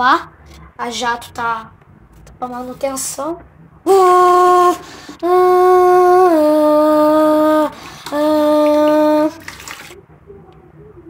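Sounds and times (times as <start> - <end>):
person humming a slow tune: 3.9 - 9.4.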